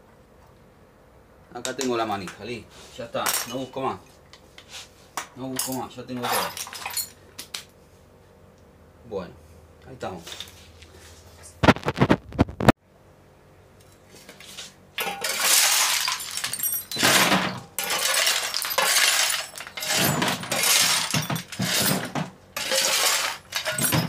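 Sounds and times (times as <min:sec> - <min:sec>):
scrap metal clattering into bucket: 0:06.2 - 0:07.1, 0:15.0 - 0:24.0.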